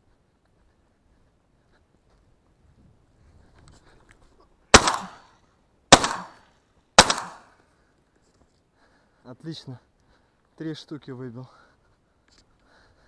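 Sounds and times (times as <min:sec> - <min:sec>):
shotgun shots: 0:04.7 - 0:05.3, 0:05.9 - 0:07.5.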